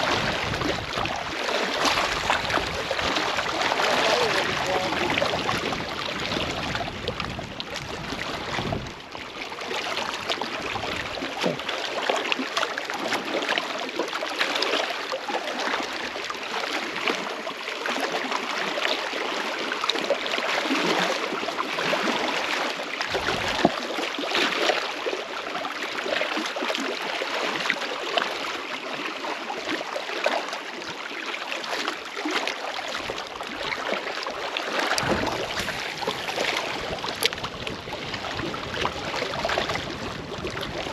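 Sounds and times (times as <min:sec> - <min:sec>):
waves lapping against rocks: 0:00.0 - 0:40.9
dull low thumps: 0:35.0 - 0:38.5.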